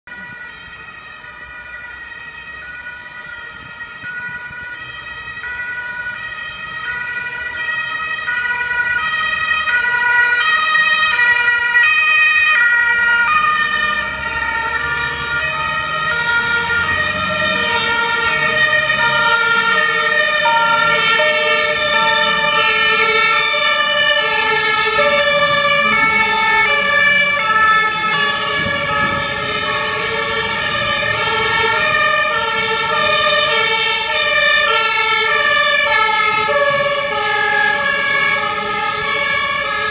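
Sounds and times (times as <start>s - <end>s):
two-tone sirens: 0.0s - 39.9s
vehicle engine rumble: 12.9s - 39.9s.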